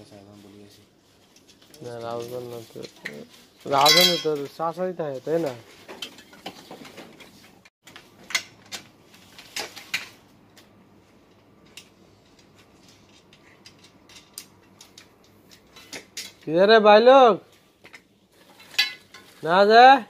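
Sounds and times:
metal tubes clinking and knocking: 1.3s - 4.6s, 12.8s - 16.5s, 17.8s - 19.5s.

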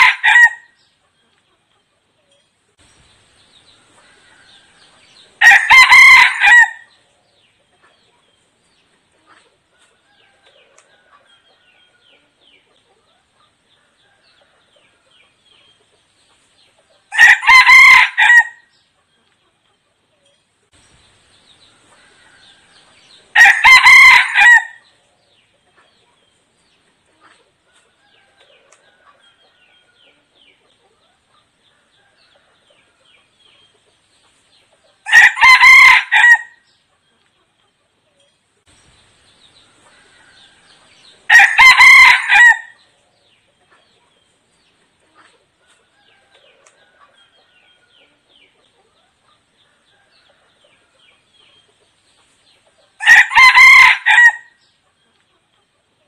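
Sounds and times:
rooster crowing: 0.0s - 0.7s, 4.1s - 6.9s, 17.1s - 18.6s, 22.0s - 24.8s, 35.0s - 36.6s, 40.0s - 42.8s, 53.0s - 54.6s.

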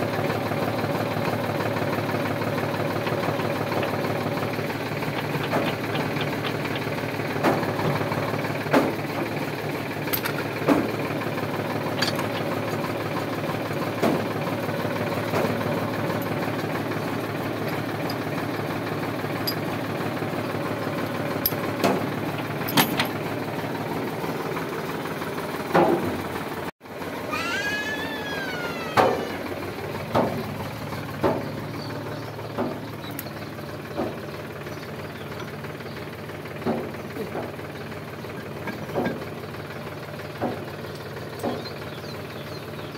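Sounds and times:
tractor diesel engine idling: 0.0s - 42.9s.

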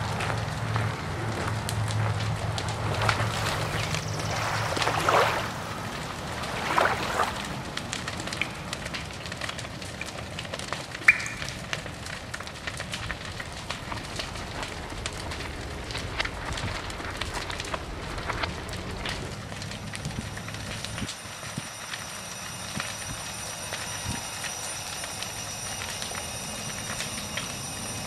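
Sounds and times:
fire crackling: 0.0s - 28.0s
sharp fire snap: 7.2s - 28.0s.

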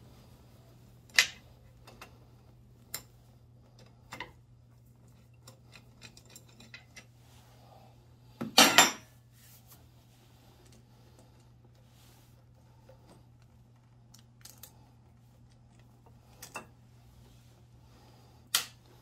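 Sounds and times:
metal tools clattering down: 8.5s - 9.1s.

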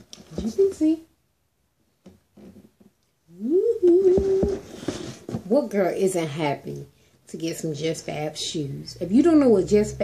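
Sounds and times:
woman singing ooh: 3.3s - 4.8s.

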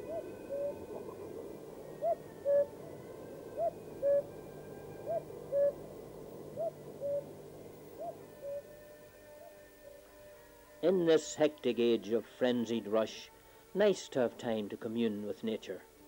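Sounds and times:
cuckoo calling: 0.0s - 10.2s.

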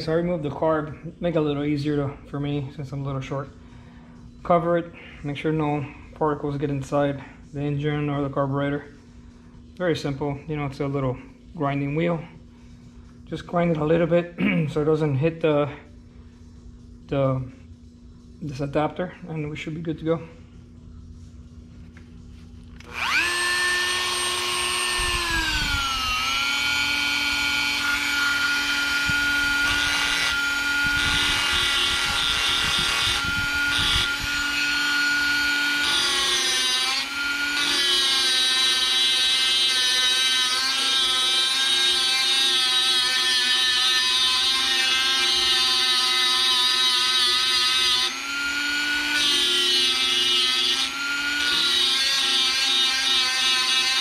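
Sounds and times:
rotary tool grinding: 22.8s - 54.0s.

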